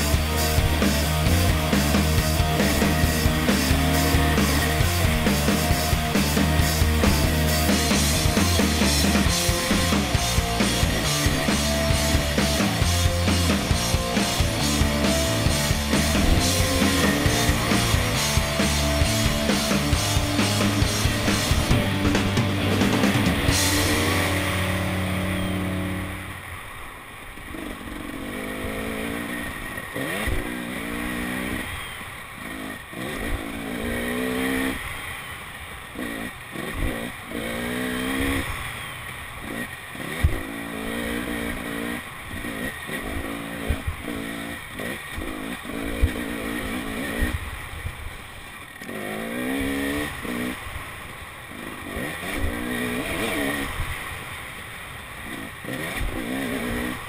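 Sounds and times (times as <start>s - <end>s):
background music: 0.0s - 26.4s
dirt bike engine revving: 0.0s - 26.8s, 27.4s - 57.0s.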